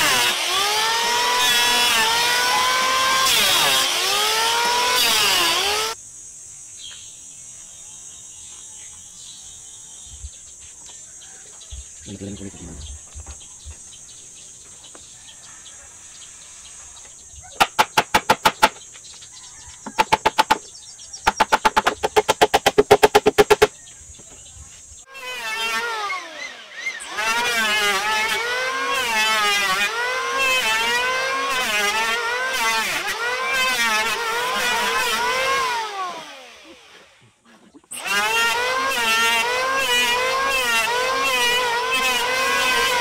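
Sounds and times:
chainsaw sputtering and revving: 0.0s - 6.0s, 21.3s - 23.7s, 25.2s - 37.2s, 37.9s - 43.0s.

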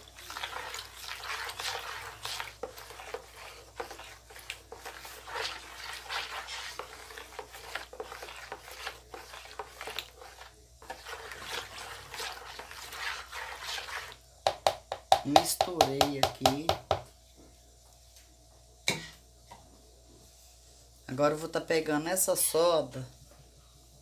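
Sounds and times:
liquid sloshing: 0.0s - 14.2s
plastic spoon scraping basin: 0.0s - 14.2s.

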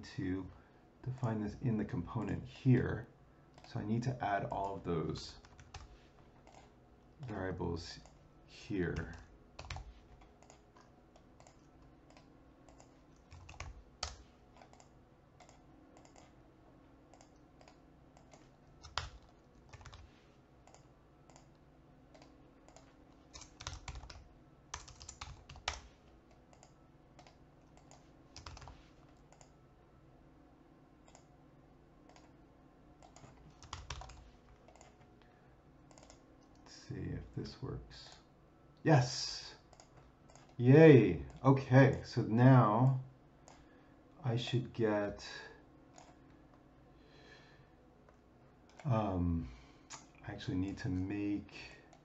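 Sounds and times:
low steady hum: 0.0s - 52.0s
keyboard keystrokes: 22.2s - 25.9s, 26.5s - 29.5s.

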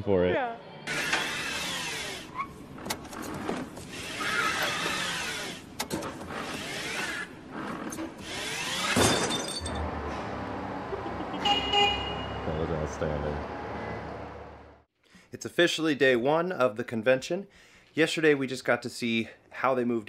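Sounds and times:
electric cart motor whining: 0.9s - 9.0s.

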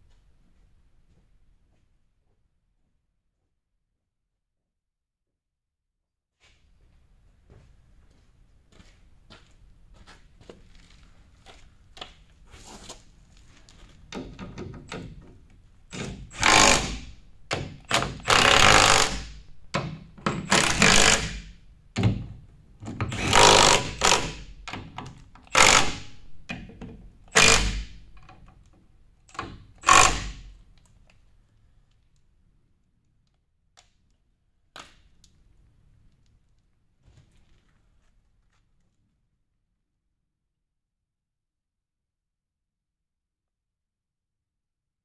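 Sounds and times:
impact wrench hammering: 15.9s - 22.2s, 23.0s - 26.7s, 27.3s - 28.4s, 29.3s - 30.6s.

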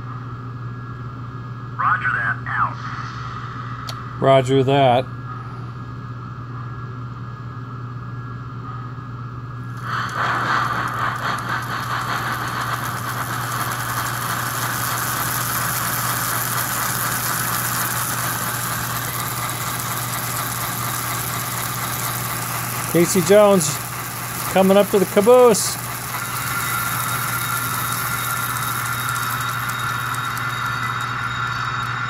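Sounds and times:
motor spinning: 9.7s - 32.0s
toy locomotive steam chuff: 9.7s - 32.0s.

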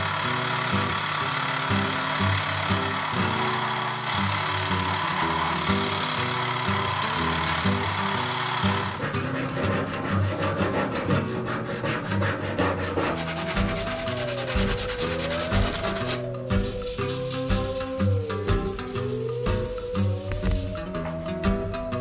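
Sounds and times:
background music: 2.7s - 22.0s
sandpaper rubbing on knife handle: 8.6s - 20.9s.

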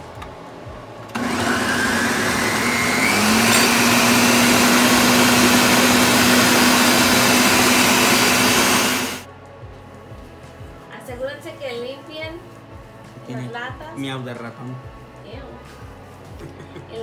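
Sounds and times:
blender motor whine: 1.1s - 9.3s.

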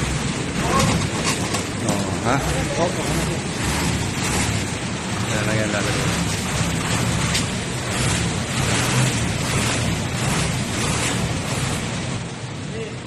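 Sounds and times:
truck engine running: 0.0s - 12.7s
steady rushing noise: 0.0s - 13.0s.

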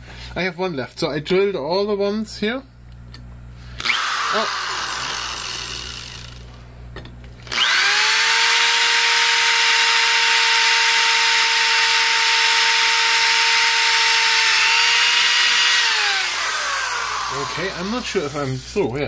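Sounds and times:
power drill whining: 3.7s - 6.5s, 7.4s - 19.0s
drill bit cutting steel: 3.8s - 6.5s, 7.5s - 19.0s.

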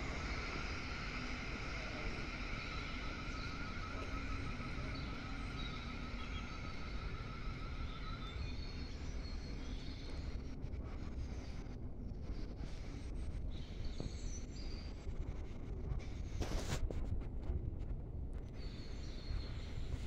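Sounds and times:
electric train whine: 0.0s - 15.0s, 18.5s - 20.0s.

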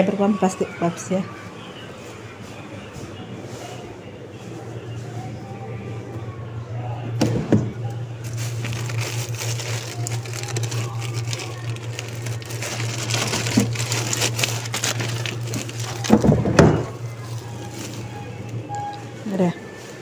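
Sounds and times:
steady low hum: 1.5s - 20.0s
plastic bags crinkling: 8.2s - 19.1s.

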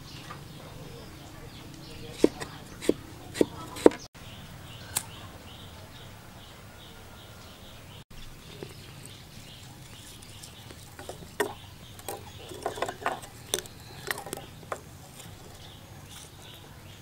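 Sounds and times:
twigs crackling: 8.1s - 17.0s.

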